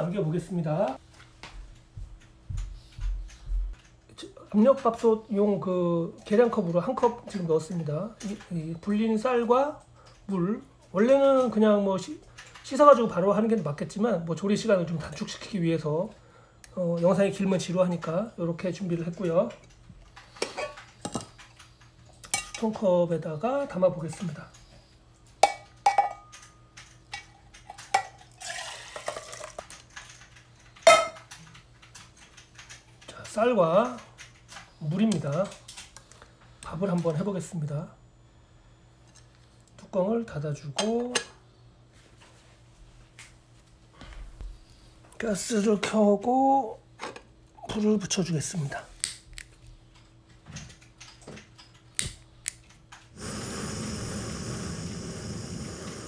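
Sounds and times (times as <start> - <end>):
gas burner hissing: 52.0 - 56.0
lighter clicking: 53.2 - 56.0.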